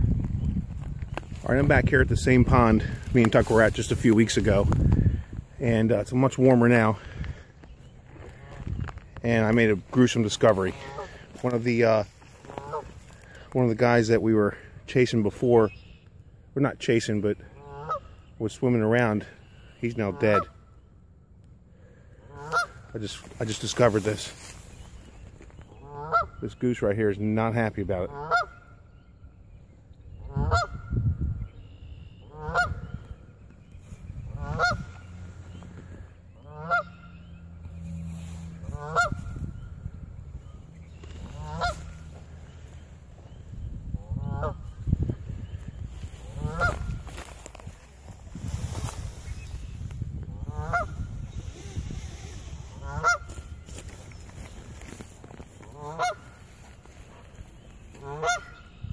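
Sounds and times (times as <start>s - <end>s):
goose honking: 8.1s - 8.8s, 9.4s - 11.7s, 12.3s - 13.4s, 17.6s - 18.2s, 19.8s - 20.7s, 22.2s - 24.3s, 25.7s - 26.5s, 28.0s - 28.8s, 30.2s - 31.0s, 32.2s - 33.0s, 34.3s - 37.6s, 38.2s - 39.6s, 40.5s - 42.8s, 44.0s - 44.8s, 46.2s - 47.2s, 50.3s - 51.2s, 52.3s - 53.8s, 55.6s - 58.8s.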